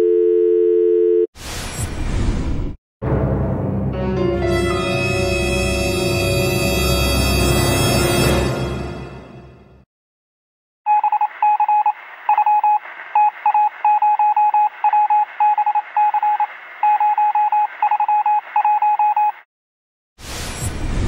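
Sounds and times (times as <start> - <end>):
morse code beeps: 10.9 - 19.4.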